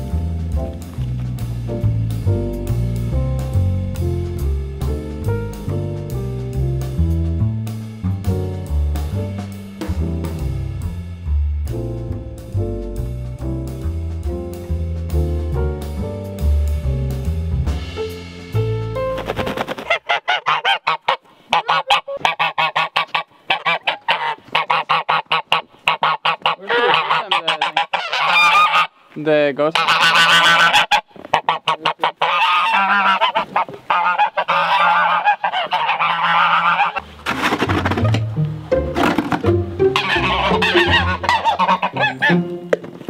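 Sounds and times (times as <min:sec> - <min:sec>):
geese honking: 0:19.0 - 0:29.0, 0:29.6 - 0:43.0.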